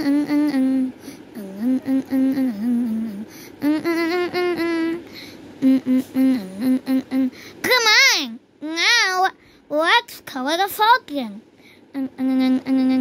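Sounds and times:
person singing wordless tune: 0:00.0 - 0:07.4.

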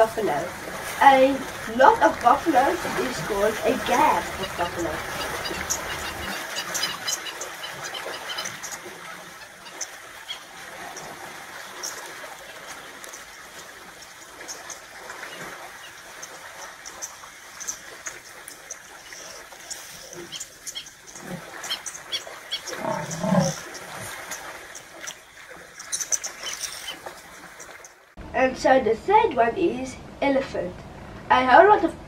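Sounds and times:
buffalo bellowing: 0:22.6 - 0:23.8.

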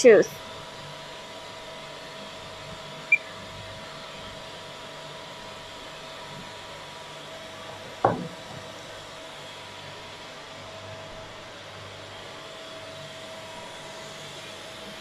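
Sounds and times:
single knock: 0:08.0 - 0:08.6.

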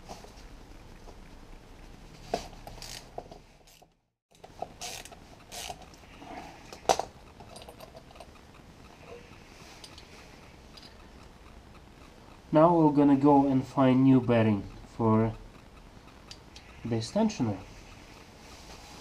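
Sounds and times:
screwdriver ratchet clicking: 0:02.8 - 0:03.1, 0:03.7 - 0:06.0.

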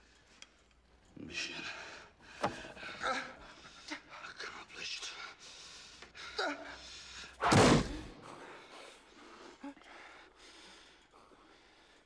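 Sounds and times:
knife slamming into desk: 0:07.4 - 0:08.0.

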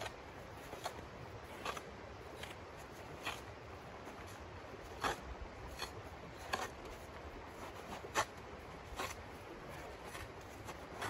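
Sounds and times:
shovel scraping icy snow: 0:04.1 - 0:11.0.

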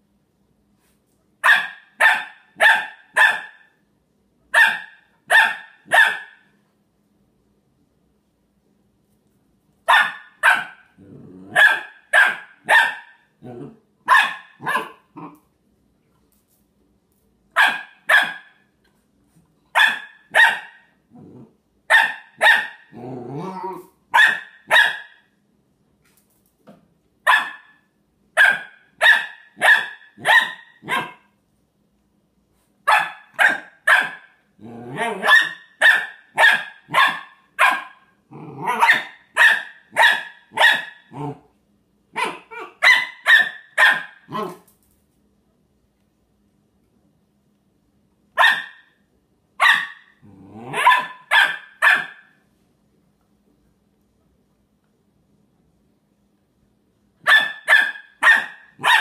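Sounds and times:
puppy barking: 0:01.4 - 0:03.7, 0:04.5 - 0:06.5, 0:09.9 - 0:13.3, 0:14.0 - 0:15.4, 0:17.6 - 0:18.7, 0:19.7 - 0:20.9, 0:21.9 - 0:23.0, 0:23.7 - 0:25.3, 0:27.2 - 0:31.3, 0:32.9 - 0:34.4, 0:35.0 - 0:41.4, 0:42.1 - 0:44.7, 0:48.4 - 0:49.0, 0:49.6 - 0:52.4, 0:57.2 - 0:59.0
puppy growling: 0:10.9 - 0:11.7, 0:13.4 - 0:13.9, 0:14.7 - 0:15.5, 0:21.1 - 0:21.6, 0:22.9 - 0:24.0, 0:34.6 - 0:35.3, 0:38.3 - 0:39.0, 0:41.1 - 0:41.5, 0:50.2 - 0:51.0.

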